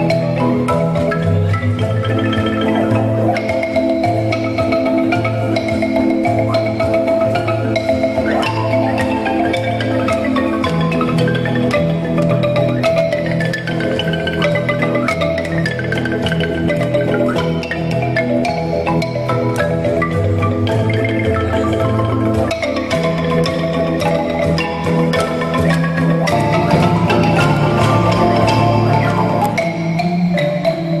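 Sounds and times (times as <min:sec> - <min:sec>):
marimba-like melody: 0:00.0 - 0:31.0
repeating bass line: 0:26.3 - 0:29.9.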